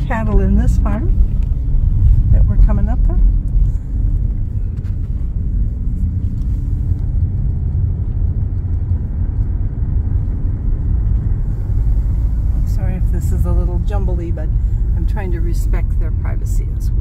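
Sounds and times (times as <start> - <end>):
car road and engine rumble: 0.0 - 17.0.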